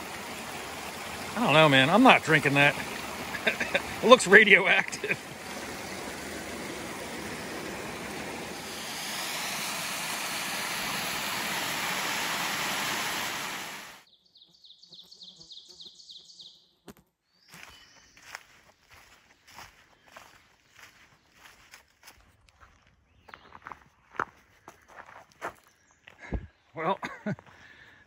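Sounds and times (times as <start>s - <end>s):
small waterfall splashing: 0.0s - 14.0s
stream running over rocks: 0.0s - 14.0s
bird chirping: 14.1s - 16.7s.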